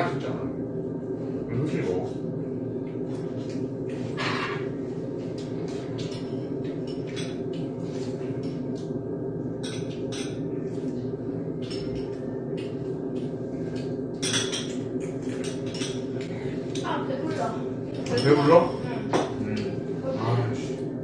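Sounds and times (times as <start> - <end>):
steady low hum: 0.0 - 21.0
utensils clinking on ceramic bowls: 18.0 - 18.9.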